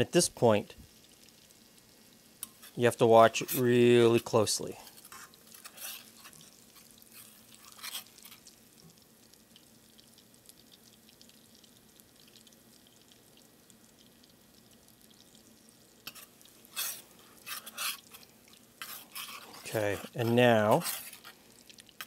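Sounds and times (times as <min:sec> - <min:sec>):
butter sizzling in a pan: 0:00.0 - 0:22.0
metal spoon scraping a pan: 0:02.4 - 0:08.6, 0:16.0 - 0:21.4.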